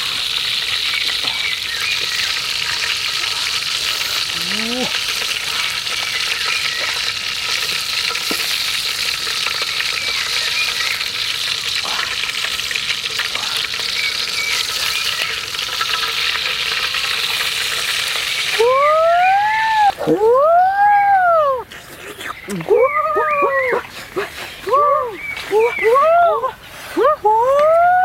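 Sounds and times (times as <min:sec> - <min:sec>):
meat sizzling in hot oil: 0:00.0 - 0:20.0
loud cry: 0:18.6 - 0:21.6.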